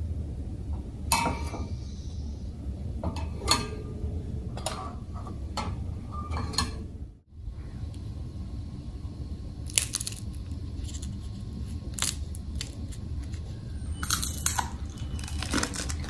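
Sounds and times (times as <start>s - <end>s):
steady low hum: 0.0s - 16.0s
dishes clinking: 4.6s - 6.9s.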